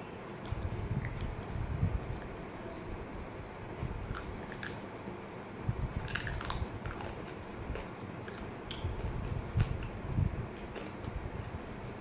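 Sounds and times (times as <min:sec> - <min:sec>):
person chewing food: 0:05.8 - 0:11.8.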